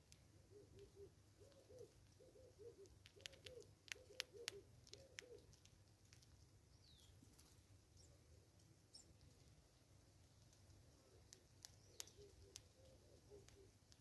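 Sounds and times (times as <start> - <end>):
dove cooing: 0.4 - 5.5, 12.0 - 13.8
sharp clicks: 2.8 - 6.3, 11.3 - 12.8.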